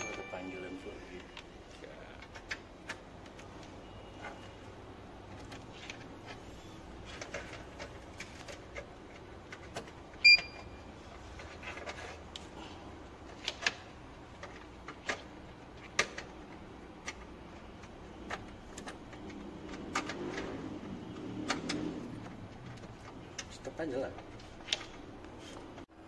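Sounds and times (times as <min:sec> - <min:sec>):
short high beep: 0:10.2 - 0:10.8.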